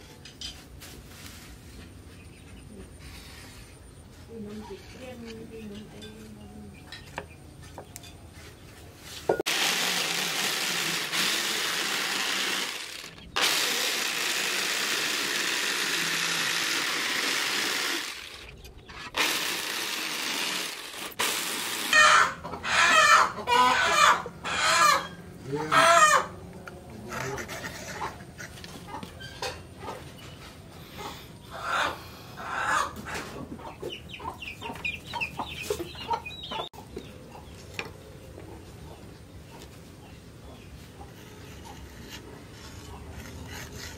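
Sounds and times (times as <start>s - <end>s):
electric jigsaw cutting wood: 9.5s - 18.5s, 19.1s - 22.3s
chickens clucking and squawking: 21.9s - 43.9s.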